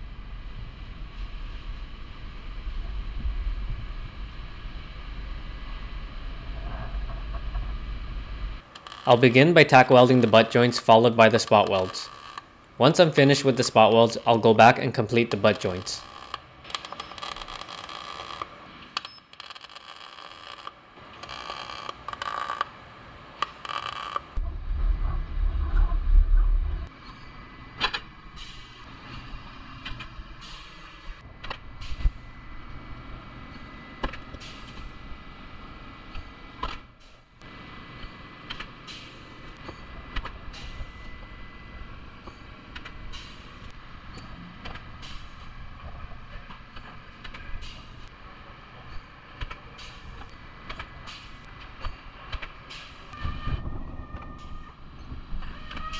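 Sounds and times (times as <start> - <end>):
deep hum: 0.0 - 8.6, 24.4 - 30.4
steady low hum: 0.0 - 16.6, 24.3 - 55.5
spot welds hissing and clicking: 15.6 - 22.7, 23.4 - 24.4, 46.5 - 48.1, 48.9 - 53.2.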